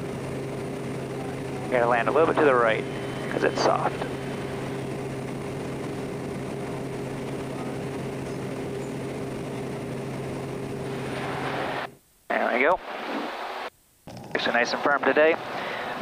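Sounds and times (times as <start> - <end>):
propeller engine droning: 0.0 - 16.0.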